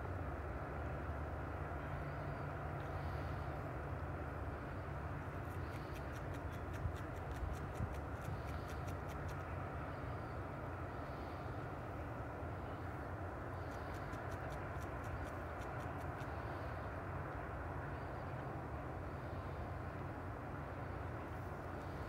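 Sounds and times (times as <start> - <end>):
faint sharp high clicks: 5.4 - 9.5, 13.6 - 16.5.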